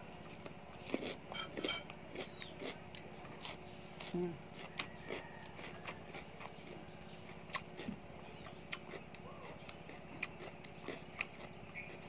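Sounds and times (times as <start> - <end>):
person chewing and lip smacking: 0.4 - 12.0.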